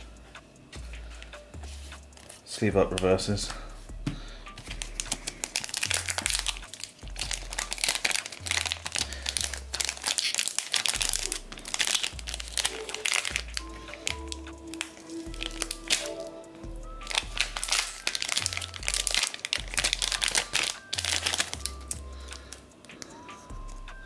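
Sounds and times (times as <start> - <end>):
background music with bass line: 0.0 - 10.1, 23.5 - 24.0
foil wrapper crinkling: 4.6 - 16.4, 17.0 - 23.2.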